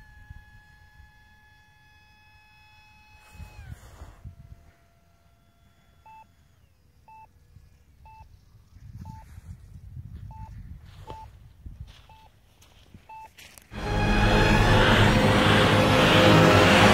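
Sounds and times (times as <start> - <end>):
short electronic beeps: 7.1 - 7.3, 8.0 - 8.3, 9.0 - 9.3, 10.3 - 10.5, 11.1 - 11.3, 12.1 - 12.3, 13.0 - 13.4
low rumble: 13.8 - 16.9.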